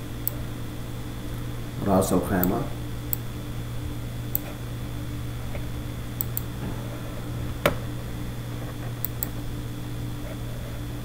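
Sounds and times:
steady electrical hum: 0.0s - 11.0s
computer mouse clicks: 6.2s - 6.5s, 9.0s - 9.3s.

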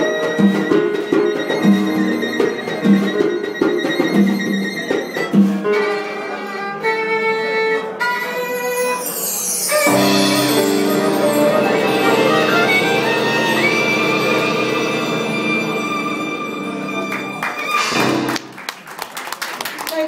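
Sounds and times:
drum kit beat: 0.0s - 5.7s
violin: 0.0s - 18.6s.

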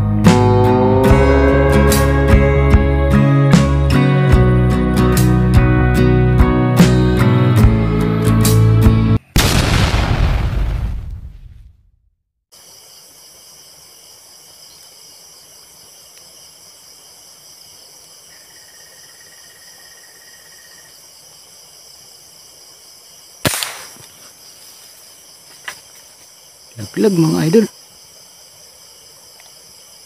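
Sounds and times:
crickets trilling: 12.5s - 30.0s
airgun shot with ringing tail: 23.4s - 24.1s.

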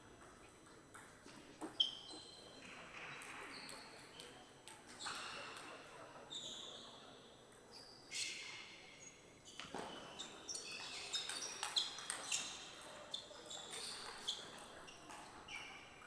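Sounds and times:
shoe squeaks: 1.7s - 2.6s, 9.5s - 16.0s.

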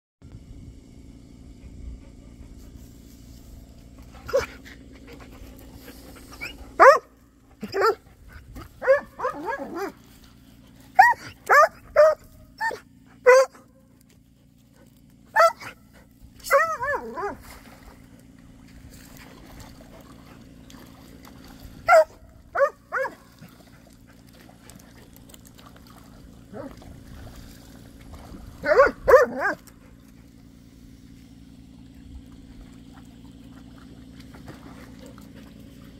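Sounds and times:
dog barking and whining: 4.3s - 4.6s, 6.3s - 8.0s, 8.8s - 10.0s, 10.9s - 13.7s, 15.3s - 15.8s, 16.4s - 17.4s, 21.8s - 23.3s, 28.6s - 29.6s.

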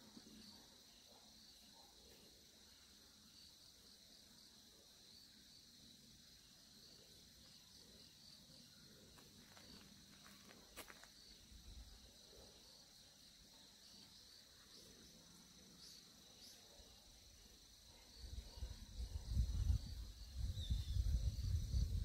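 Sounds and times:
insects chirring: 0.0s - 22.0s.

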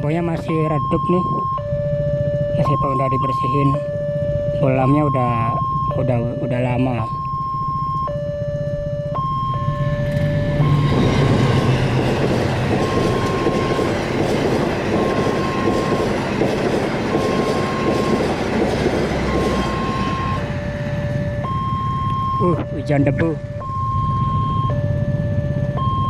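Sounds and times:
crossing warning alarm two-tone: 0.0s - 26.0s
passenger train passing: 9.5s - 23.4s.

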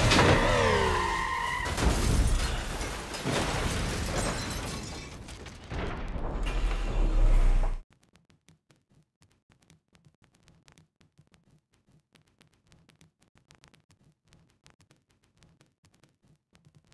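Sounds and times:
car tyres squealing: 0.0s - 2.0s
heavy impacts with shattering: 0.0s - 7.6s.

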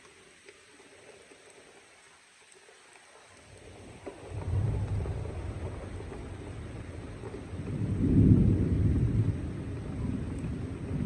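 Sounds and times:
rain on leafy trees: 0.0s - 11.0s
thunder rumble: 3.5s - 11.0s.

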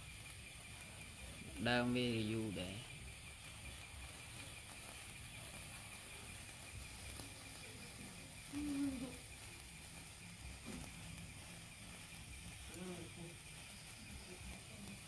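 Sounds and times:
faint pitched sound: 0.0s - 15.0s
sparkler fizzing and crackling: 0.0s - 15.0s.

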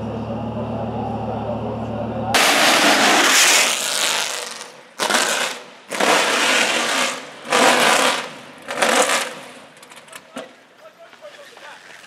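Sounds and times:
car exhaust revving: 0.0s - 9.6s.

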